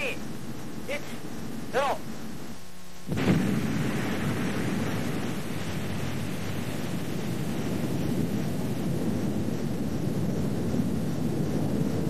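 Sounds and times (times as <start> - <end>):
long rumble: 0.0 - 12.0
underwater explosion blast: 3.1 - 10.2.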